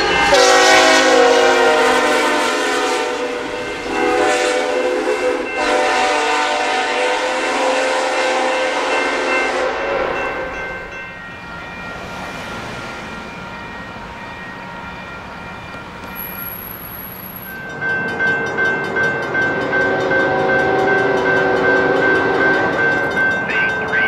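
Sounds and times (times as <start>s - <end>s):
train air horn chord: 0.0s - 10.6s
crossing bell ringing: 0.0s - 24.0s
train rumbling past: 0.0s - 24.0s.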